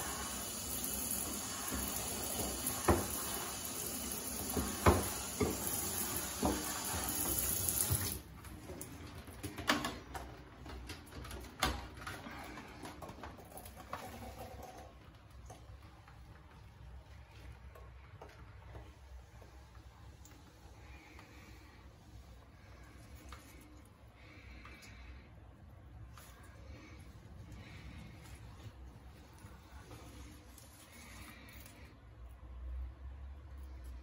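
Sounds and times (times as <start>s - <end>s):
shower spray hissing: 0.0s - 8.3s
water dripping: 0.0s - 8.9s.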